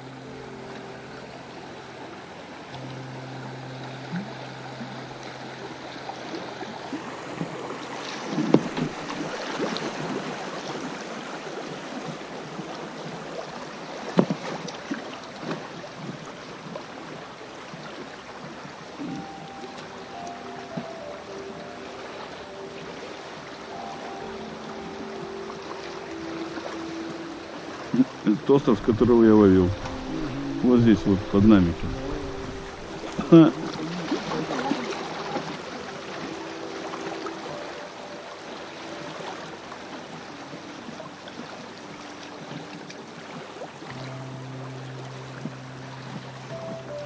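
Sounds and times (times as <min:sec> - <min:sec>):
fast river current splashing: 0:00.0 - 0:47.0
water splashing against boat hull: 0:06.0 - 0:21.0, 0:25.0 - 0:44.2.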